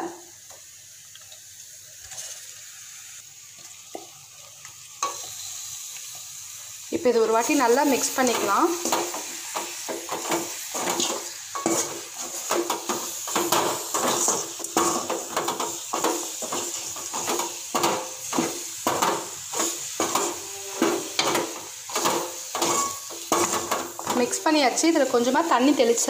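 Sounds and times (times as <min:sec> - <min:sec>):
sizzle of frying in oil: 0:00.0 - 0:26.0
metal ladle scraping a pan: 0:02.0 - 0:02.5, 0:08.0 - 0:24.5.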